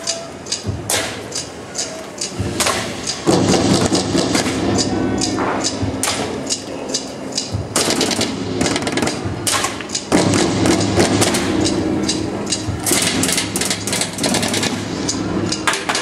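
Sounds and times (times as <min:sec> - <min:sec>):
low steady hum: 0:02.4 - 0:16.0
gunshots: 0:07.7 - 0:11.8, 0:12.5 - 0:15.0.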